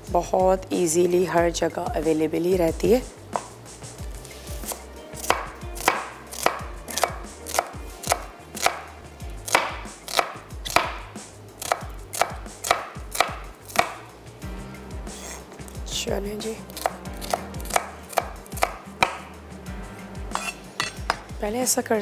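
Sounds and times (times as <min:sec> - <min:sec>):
knife chopping on cutting board: 0:04.6 - 0:14.1, 0:16.7 - 0:19.3, 0:20.3 - 0:21.3.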